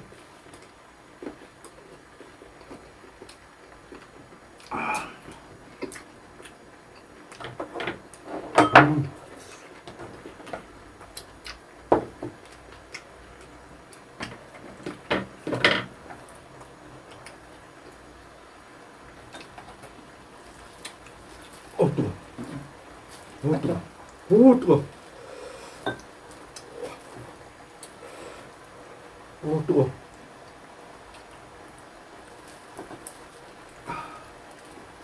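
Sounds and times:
tableware clicking and clattering: 7.8 - 9.0.

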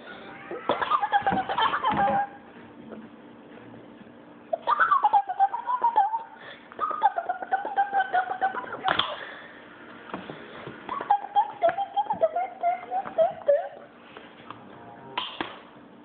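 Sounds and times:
child squealing and giggling: 0.1 - 2.4, 10.9 - 13.9.

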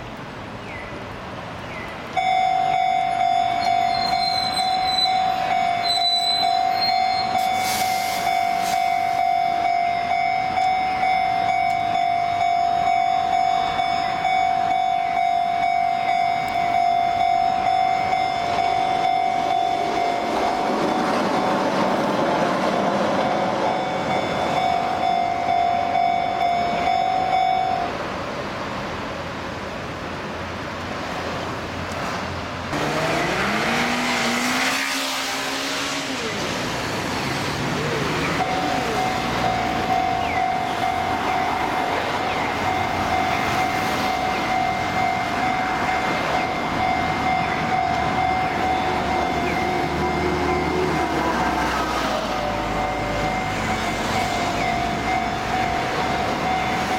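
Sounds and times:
passing train rumble: 0.0 - 56.9
level-crossing warning bell ringing: 2.1 - 21.8, 22.7 - 28.0, 38.4 - 56.9.

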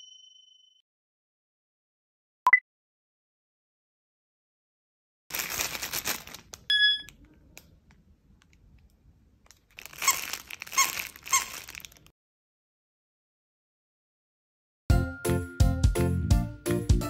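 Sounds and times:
plastic crinkling and rustling: 5.3 - 12.1
dog toy squeaks: 9.9 - 11.9.

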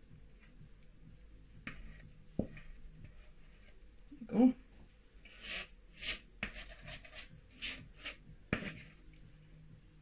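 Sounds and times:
spatula scraping batter from bowl: 5.2 - 9.0.

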